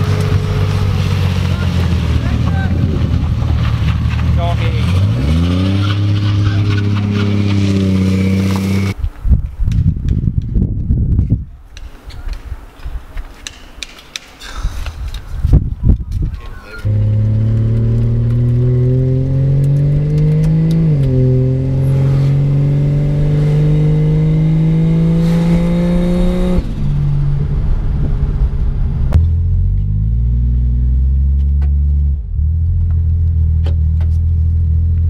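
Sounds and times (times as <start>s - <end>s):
car engine revving: 0.0s - 9.0s, 16.8s - 35.0s.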